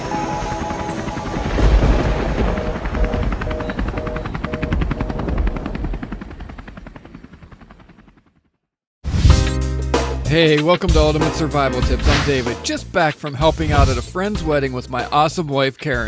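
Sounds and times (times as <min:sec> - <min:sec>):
low boom: 0:01.5 - 0:05.6.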